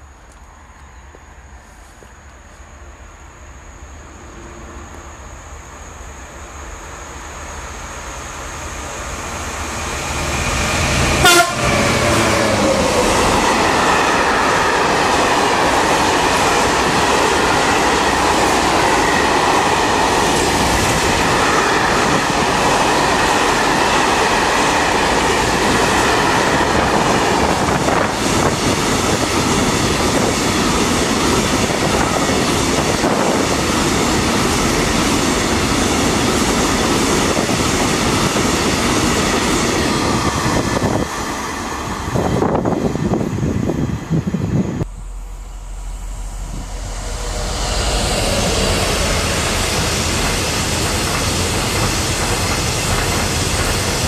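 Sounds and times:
freight train passing: 0.0 - 54.0
train horn blast: 11.0 - 12.6
wheels clattering on rails: 47.2 - 54.0.

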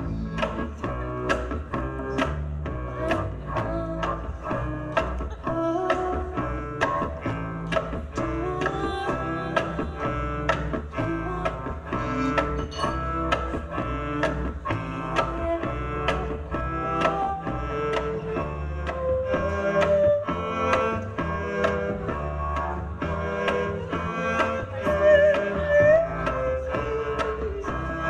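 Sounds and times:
plucked double bass: 0.0 - 28.0
woman singing into microphone: 3.0 - 7.0, 8.0 - 13.6, 15.0 - 17.4.

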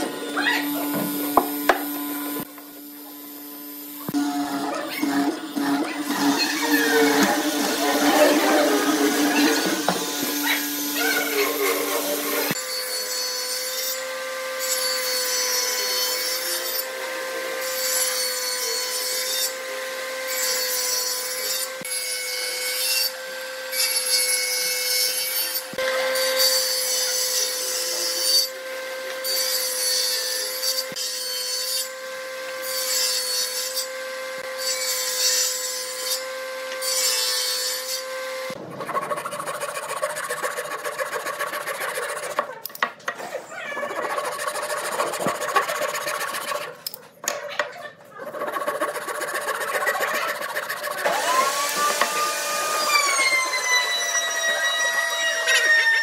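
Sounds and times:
table saw humming: 0.0 - 46.9, 48.1 - 56.0
handsaw rasping through wood: 4.6 - 12.6, 38.5 - 42.6, 43.8 - 46.9, 48.2 - 53.5.

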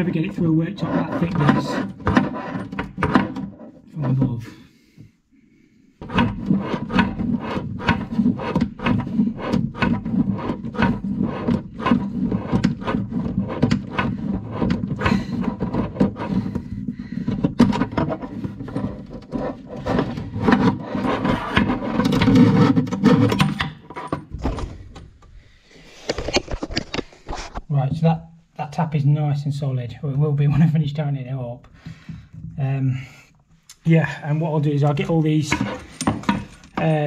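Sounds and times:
rubbing and scraping: 0.0 - 4.5, 6.0 - 28.1, 34.3 - 37.0.

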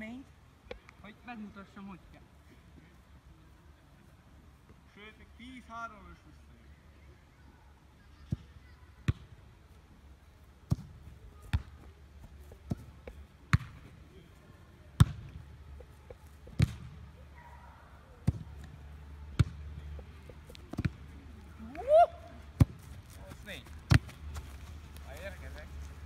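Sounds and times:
football kick thuds: 10.7 - 11.7, 13.5 - 13.9, 15.0 - 15.4, 16.5 - 17.0, 18.2 - 18.7, 19.4 - 19.6, 23.9 - 24.2.

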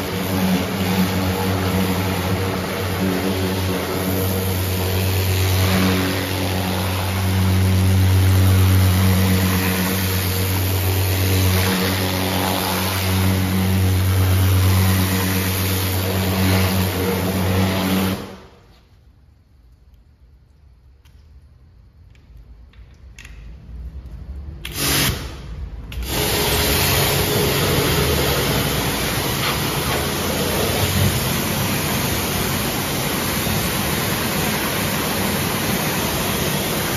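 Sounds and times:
pressure washer motor humming: 0.0 - 18.5, 25.9 - 36.9
water jet hissing: 26.0 - 36.9.

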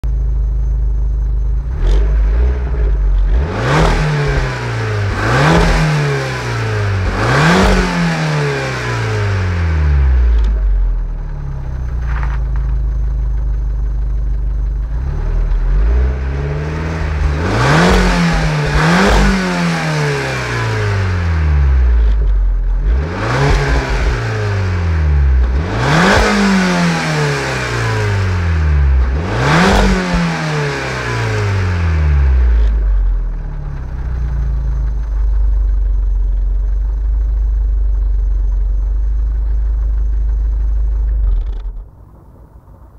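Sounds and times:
car engine revving from idle: 1.5 - 42.2.

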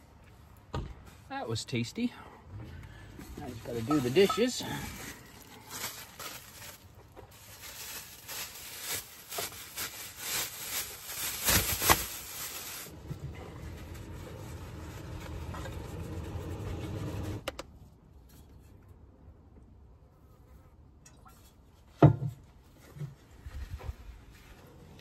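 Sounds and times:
paper towel wiping dishes: 3.5 - 5.4.

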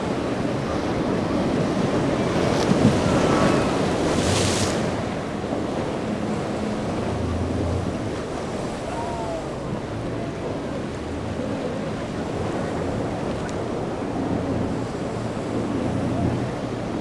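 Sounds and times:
boat engines droning: 0.0 - 17.0
rough surf and waves: 0.0 - 17.0.

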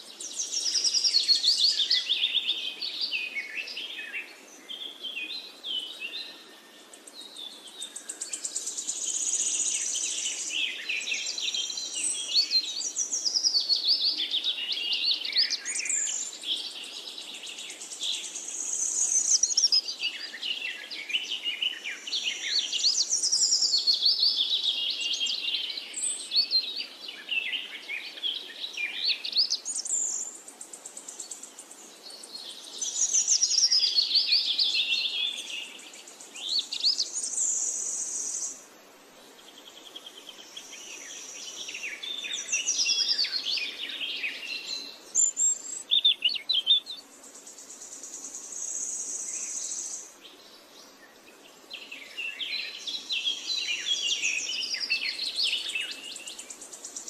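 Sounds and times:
small birds chirping in chorus: 0.0 - 57.0.

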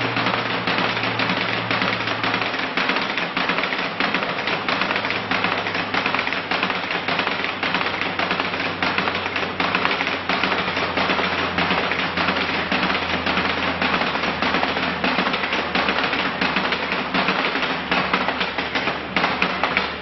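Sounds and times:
fast rattling percussion: 0.0 - 20.0
steady low hum: 0.0 - 20.0.

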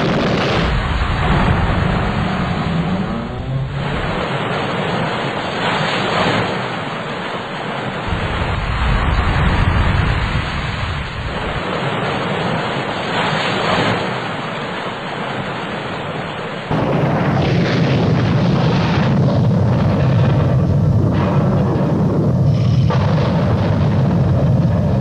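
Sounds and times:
loud rushing rumble: 0.0 - 5.3, 8.0 - 12.0.

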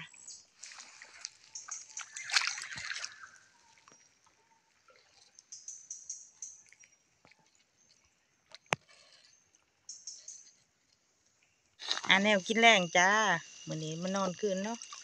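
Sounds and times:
water splashing in a stream: 0.0 - 9.8, 14.4 - 15.0.

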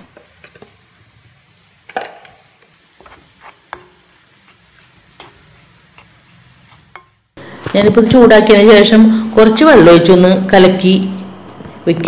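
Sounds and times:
wooden spatula scraping a pan: 3.0 - 7.3.

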